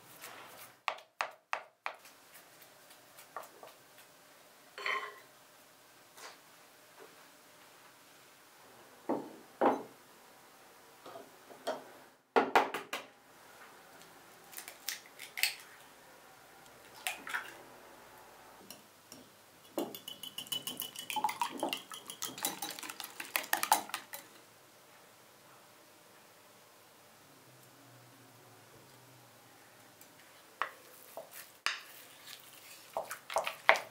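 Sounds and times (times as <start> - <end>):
whisk beating against glass bowl: 19.7 - 24.3
eggs cracking: 20.0 - 24.4
wooden spoon stirring dough: 30.2 - 33.9.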